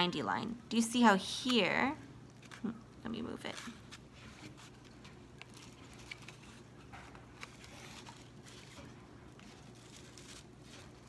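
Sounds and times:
low steady hum: 0.0s - 11.0s
paper and plastic rustling: 2.3s - 11.0s.

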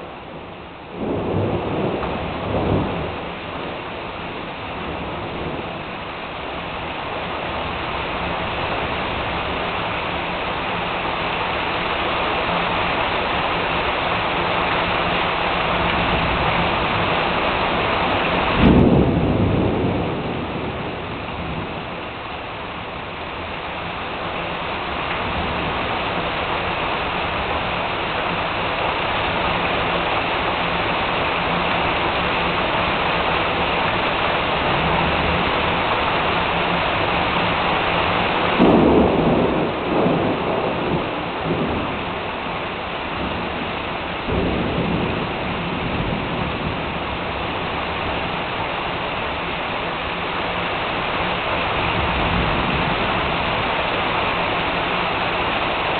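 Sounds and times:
heavy rain pouring: 0.0s - 55.9s
thunderclap: 0.3s - 3.8s, 18.0s - 22.2s, 38.4s - 42.3s, 43.0s - 47.7s.

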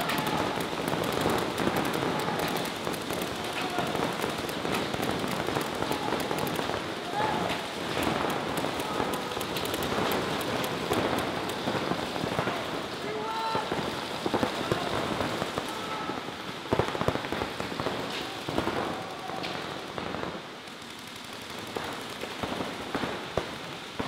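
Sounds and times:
paintball markers firing: 0.0s - 12.1s.

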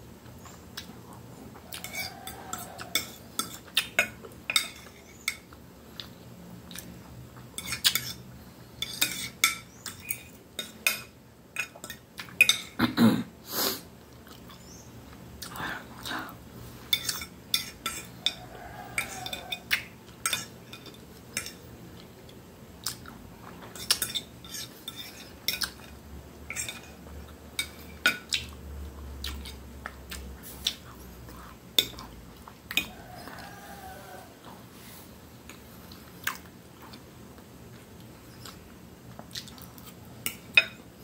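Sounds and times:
cutlery scraping a ceramic plate: 8.8s - 11.1s, 23.7s - 25.8s.

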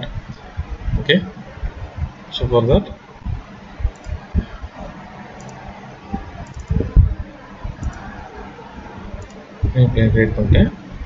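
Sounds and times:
low room noise: 0.0s - 11.0s
computer mouse clicks: 3.9s - 4.2s, 5.4s - 5.6s, 6.4s - 7.0s, 7.8s - 8.1s, 9.2s - 9.4s
low thumps: 6.1s - 8.0s.

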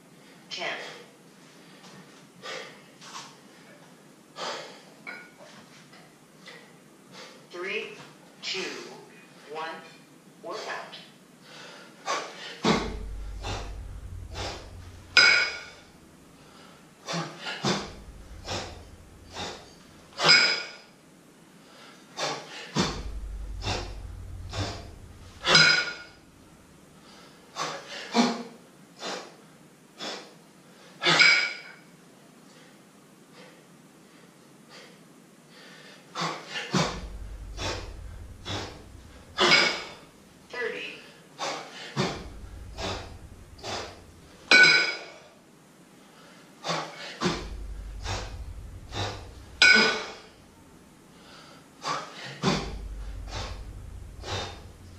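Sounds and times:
man breathing hard: 4.4s - 5.0s
forceful exhale: 11.4s - 20.4s, 41.1s - 44.4s, 51.1s - 54.9s.

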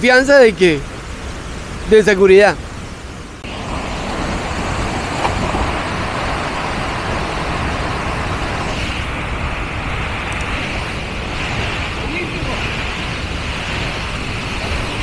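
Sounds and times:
waterfall roaring: 0.1s - 15.0s
person diving into water: 3.5s - 8.7s.

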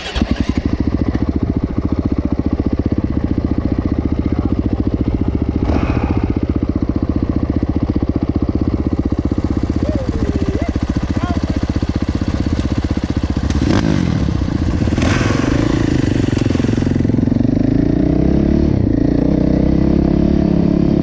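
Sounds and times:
dirt bike engine idling: 0.0s - 18.2s.

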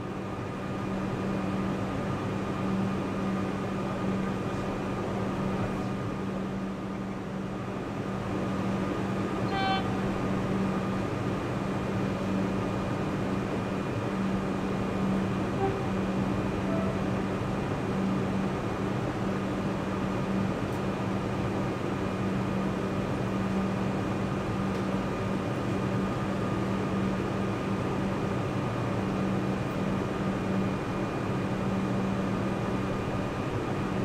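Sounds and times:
electric train humming: 0.0s - 34.0s
train horn note: 9.4s - 10.1s, 15.5s - 17.2s.

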